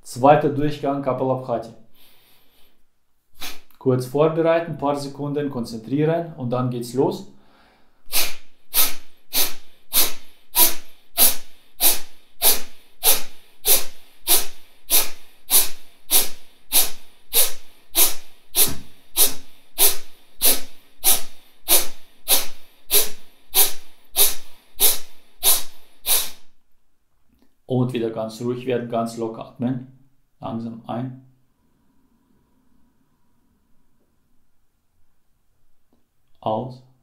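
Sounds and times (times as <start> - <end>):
quiet in-breaths: 1.8 - 2.9, 7.3 - 26.4, 31.5 - 34.3
man's forceful nasal exhalations: 1.9 - 3.8, 7.4 - 26.6.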